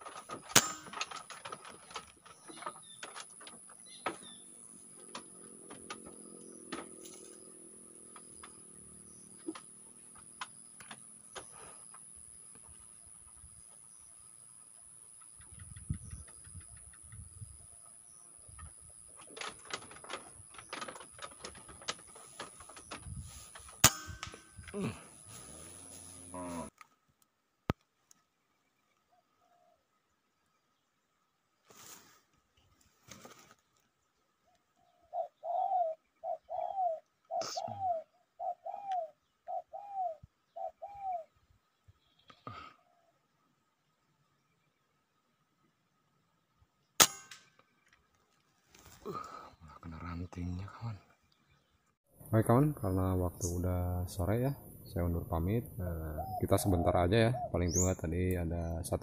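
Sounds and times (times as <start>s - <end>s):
dove cooing: 1.2s - 12.4s, 34.8s - 41.3s, 53.0s - 58.0s
high insect whine: 3.1s - 26.7s
air rifle shot: 47.0s - 47.4s.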